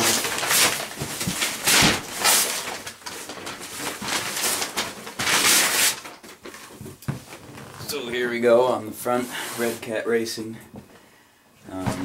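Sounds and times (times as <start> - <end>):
paper tearing and crinkling: 0.0 - 6.8.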